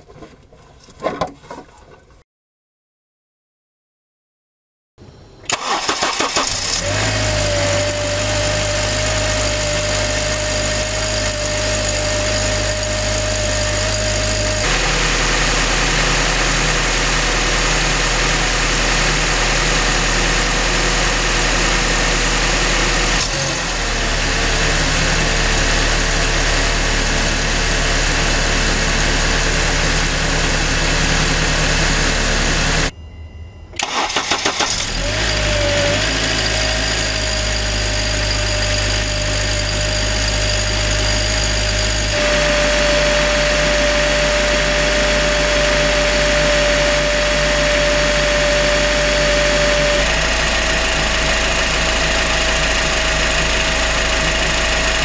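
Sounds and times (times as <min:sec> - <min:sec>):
engine cranking and starting: 0:05.5 - 0:14.8, 0:33.8 - 0:43.7
car engine idling with whine: 0:06.5 - 0:55.0.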